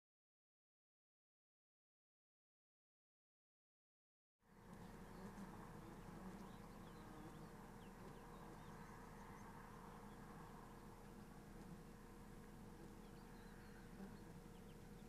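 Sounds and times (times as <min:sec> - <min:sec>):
distant birds chirping: 0:04.5 - 0:15.0.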